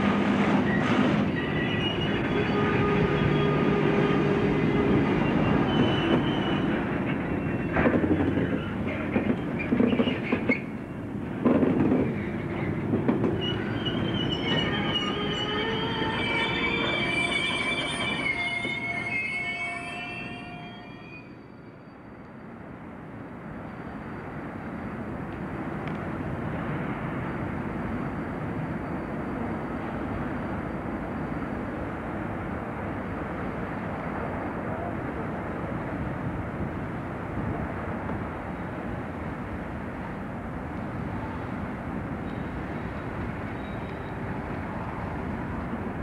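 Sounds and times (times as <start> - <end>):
diesel locomotive engine: 0.0 - 46.0
rumble of rail wagons: 0.0 - 46.0
wheel squeal: 0.6 - 3.6, 5.2 - 8.8, 13.4 - 22.1, 42.2 - 44.3.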